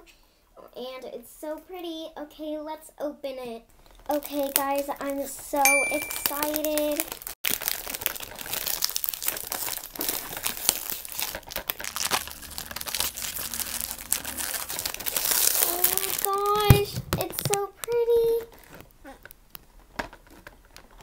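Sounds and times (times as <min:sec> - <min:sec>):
child's voice: 0:01.0 - 0:03.6, 0:15.6 - 0:18.5
plastic wrapping crinkling: 0:04.0 - 0:05.2, 0:06.2 - 0:21.0.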